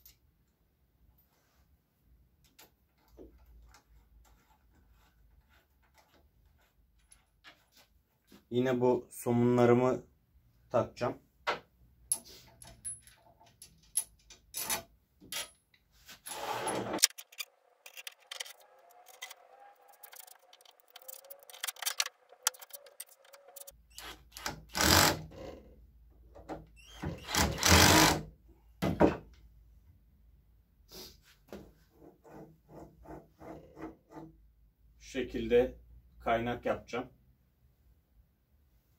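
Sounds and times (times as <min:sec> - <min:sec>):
parts and nuts clicking: 0:12.0 - 0:25.2
cordless drill driving screws: 0:16.3 - 0:25.2, 0:27.1 - 0:28.2.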